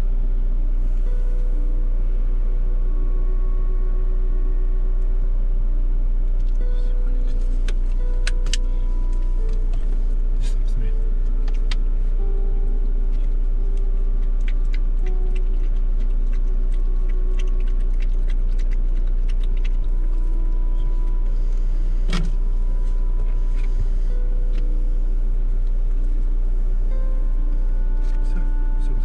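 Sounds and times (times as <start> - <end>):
car engine idling: 0.0 - 29.0
puppy eating clicks: 13.1 - 21.0.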